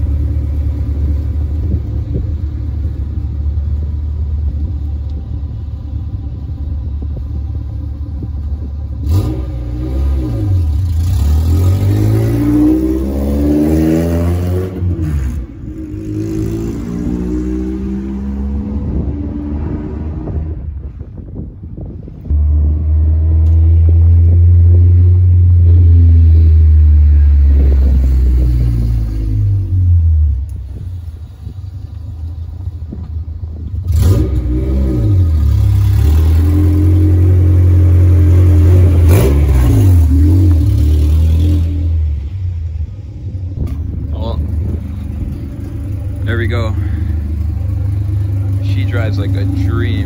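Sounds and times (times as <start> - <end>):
car engine revving: 8.1 - 20.9, 33.8 - 43.0, 43.6 - 50.0.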